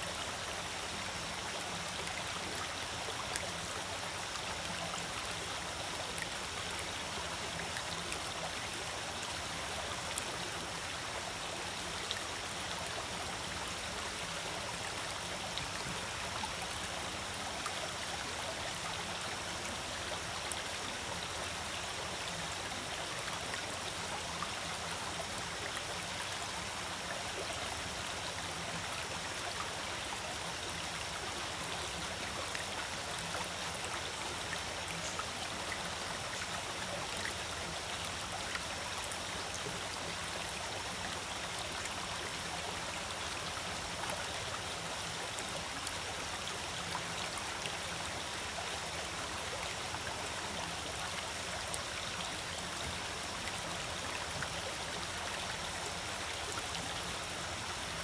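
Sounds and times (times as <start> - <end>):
stream flowing over stones: 0.0 - 58.0
water splashes and trickles: 0.0 - 58.0.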